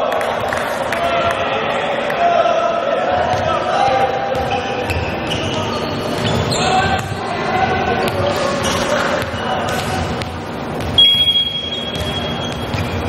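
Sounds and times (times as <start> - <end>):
players calling out: 0.0 - 13.0
referee's whistle blast: 11.0 - 12.8.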